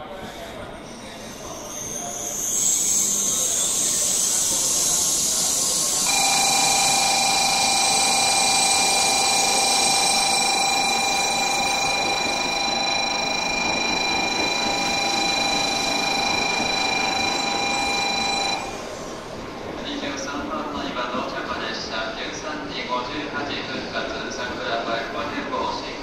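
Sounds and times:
train running noise: 0.0s - 26.0s
steady high multi-tone whine: 1.0s - 19.5s.

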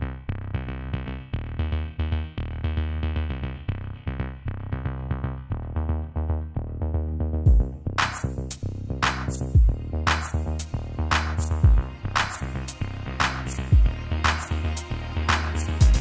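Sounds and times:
electronic music with heavy bass: 0.0s - 16.0s.

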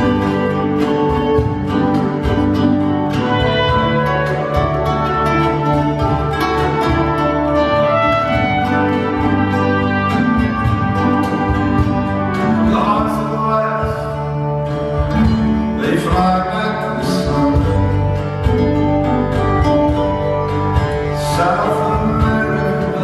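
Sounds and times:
acoustic guitars: 0.0s - 23.0s
man singing into microphone: 12.6s - 14.6s, 15.7s - 18.4s, 21.2s - 23.0s.

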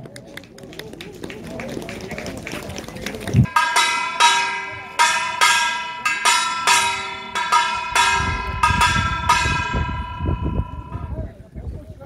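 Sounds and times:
low rumbling: 3.4s - 11.3s
brass handbell clanging: 3.5s - 11.2s.

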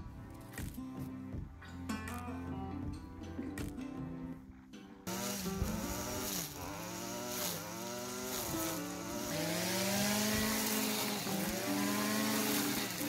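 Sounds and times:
string trimmer cutting grass: 5.1s - 13.0s.

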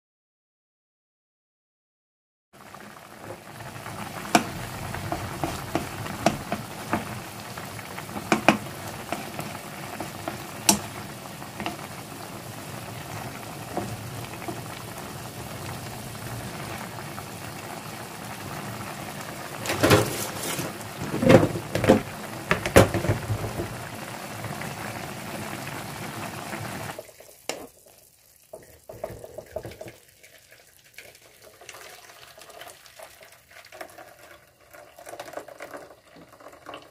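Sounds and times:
water boiling in wok: 2.6s - 36.9s
spatula knocking against pan: 8.2s - 9.4s, 10.0s - 11.0s.

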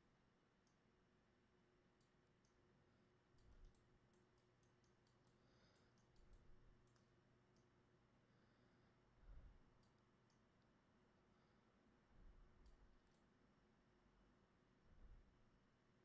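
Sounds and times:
computer mouse clicks: 2.0s - 2.6s, 3.3s - 7.8s, 9.7s - 10.7s, 12.6s - 13.4s.

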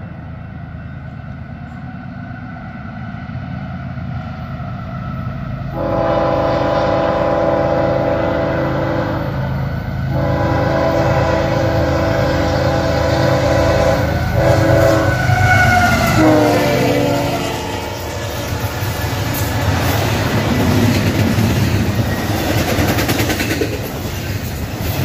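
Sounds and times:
locomotive engine rumble: 5.3s - 25.0s
train air horn blasts: 5.7s - 18.5s.

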